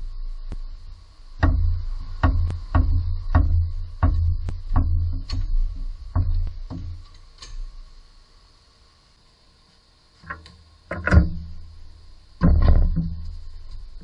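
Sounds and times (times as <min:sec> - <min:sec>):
faint high whine: 0:00.0 - 0:14.0
clunks and knocks on car wheel: 0:01.4 - 0:07.0, 0:12.4 - 0:13.3.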